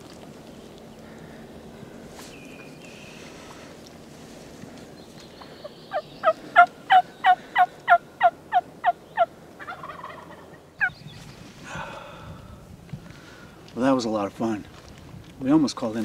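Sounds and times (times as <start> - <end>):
turkey yelping: 5.9 - 11.0.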